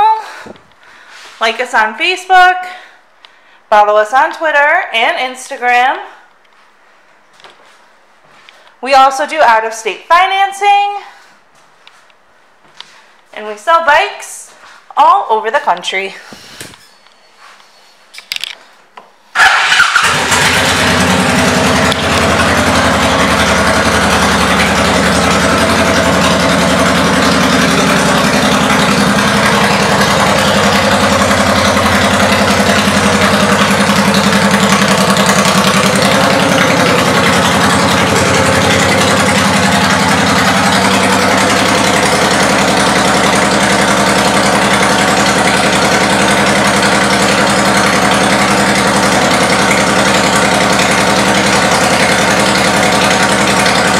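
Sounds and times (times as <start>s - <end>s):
motorcycle engine starting and idling: 19.3s - 53.9s.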